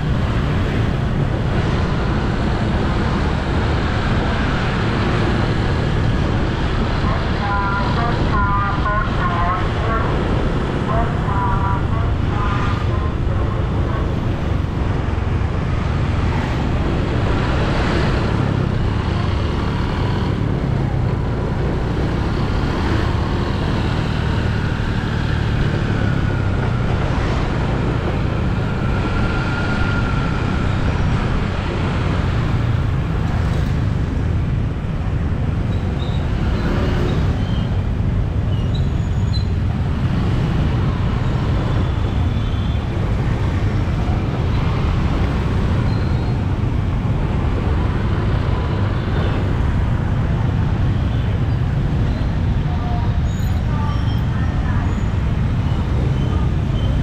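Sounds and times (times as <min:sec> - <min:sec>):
city road traffic: 0:00.0 - 0:57.0.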